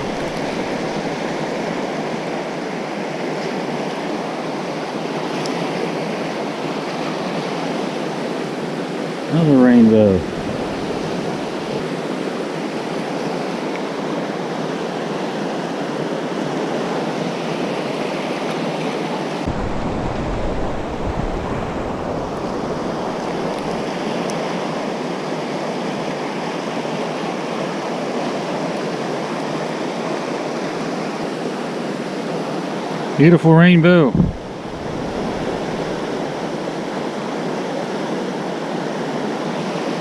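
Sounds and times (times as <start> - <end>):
low rumble on microphone: 0.0 - 1.9, 10.2 - 11.8, 19.5 - 24.0, 34.1 - 36.9
whitewater rushing: 0.0 - 12.8, 19.2 - 40.0.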